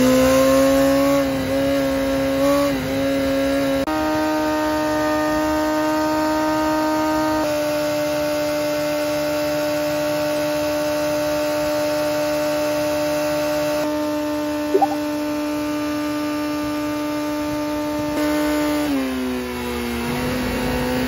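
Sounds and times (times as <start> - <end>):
motorcycle engine revving steadily: 0.0 - 21.0
short chirp: 14.7 - 15.1.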